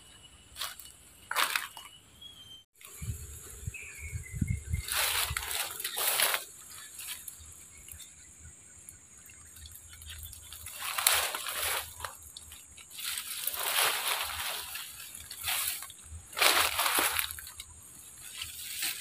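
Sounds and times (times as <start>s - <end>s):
water splashing and sloshing: 9.3s - 17.6s.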